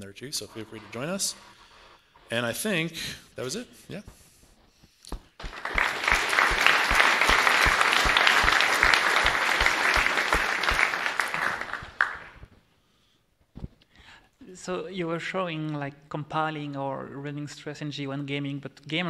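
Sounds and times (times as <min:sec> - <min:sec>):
steady rhythmic clapping: 0:05.1 - 0:12.6
audience applauding: 0:05.4 - 0:12.5.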